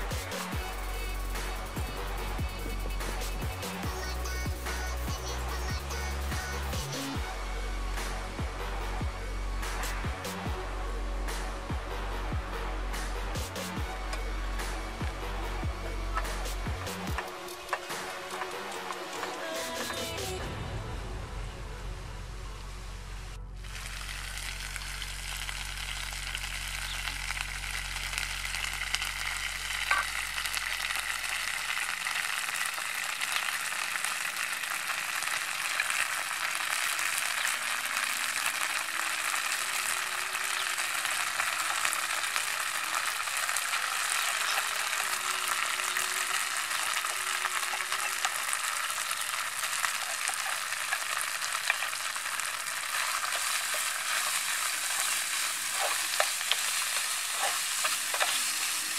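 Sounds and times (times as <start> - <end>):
food sizzling in a frying pan: 0.0 - 7.4, 16.0 - 20.6, 23.6 - 58.9
spatula stirring a pan: 16.2 - 20.4, 35.2 - 58.9.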